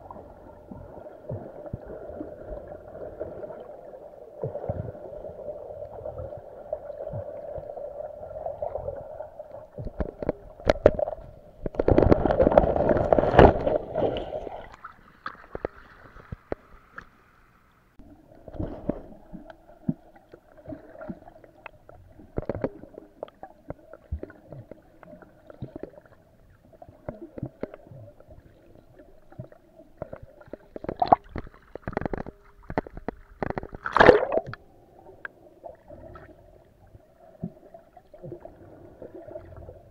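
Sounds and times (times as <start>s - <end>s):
water splashing: 0.0s - 17.1s, 26.8s - 34.7s
steady underwater hum: 0.0s - 39.9s
underwater clicks and knocks: 9.8s - 14.3s, 15.2s - 17.1s, 21.6s - 26.0s, 27.0s - 28.0s, 29.3s - 34.6s.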